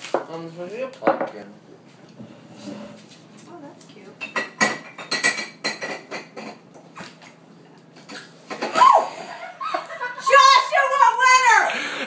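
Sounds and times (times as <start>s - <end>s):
dishes clinking in sink: 4.2s - 7.1s.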